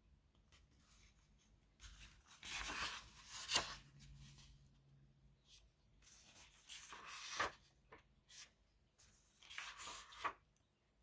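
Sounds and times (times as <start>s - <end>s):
magazine pages rustling: 0.6s - 4.6s, 6.0s - 10.5s.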